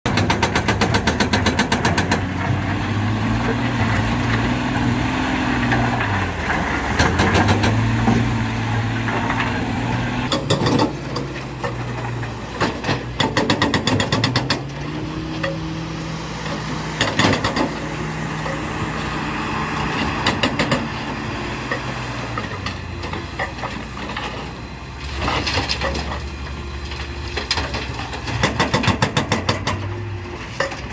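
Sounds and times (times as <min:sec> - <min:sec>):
hydraulic breaker hammering rock: 0:00.1 - 0:03.4, 0:06.9 - 0:08.4, 0:10.3 - 0:11.7, 0:12.6 - 0:15.8, 0:16.4 - 0:18.6, 0:20.2 - 0:21.0, 0:28.2 - 0:30.0
diesel engines running: 0:00.1 - 0:30.9.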